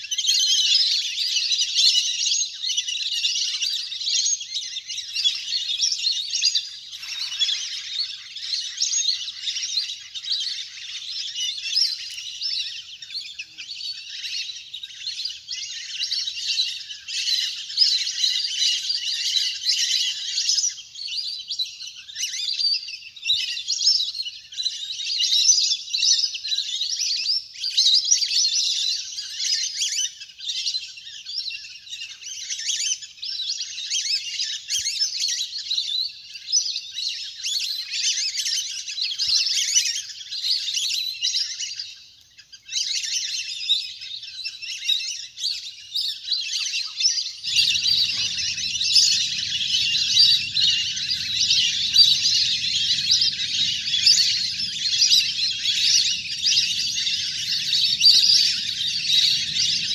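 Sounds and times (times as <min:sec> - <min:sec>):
whistling ducks calling: 0:47.2 - 0:59.9
low hum: 0:47.5 - 0:59.9.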